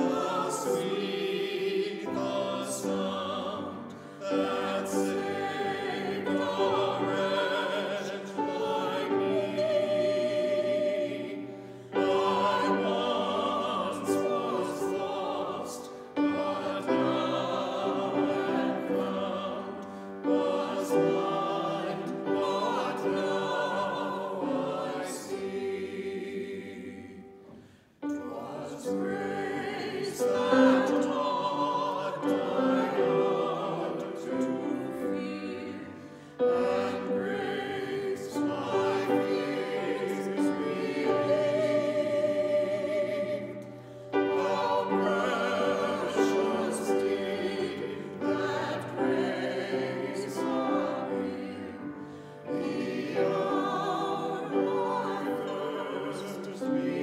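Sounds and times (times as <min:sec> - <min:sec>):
choir singing a hymn: 0:00.0 - 0:57.0
grand piano: 0:00.0 - 0:57.0.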